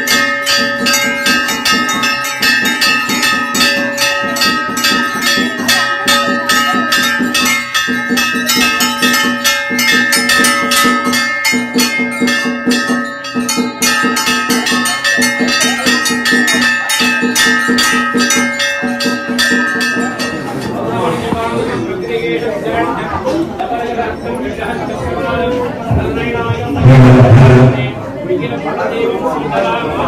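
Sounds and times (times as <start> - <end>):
fast percussion strikes: 0.0 - 21.8
temple bells ringing: 0.0 - 23.1.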